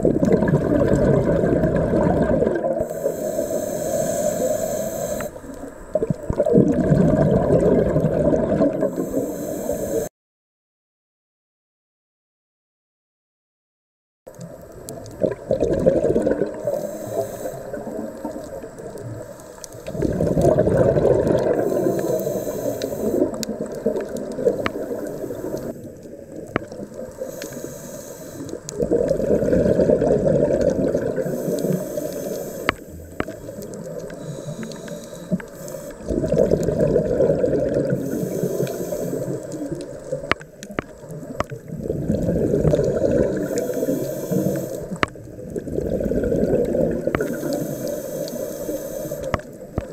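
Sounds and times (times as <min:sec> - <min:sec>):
exhaled bubbles gushing: 0:00.0 - 0:03.2, 0:05.8 - 0:09.2, 0:14.4 - 0:16.8, 0:17.7 - 0:27.4, 0:28.4 - 0:34.4, 0:35.3 - 0:48.4
regulator inhale hiss: 0:02.8 - 0:05.9, 0:08.9 - 0:10.1, 0:16.5 - 0:20.1, 0:21.4 - 0:25.9, 0:27.0 - 0:28.8, 0:31.2 - 0:36.4, 0:37.8 - 0:39.8, 0:42.6 - 0:45.2, 0:47.0 - 0:49.9.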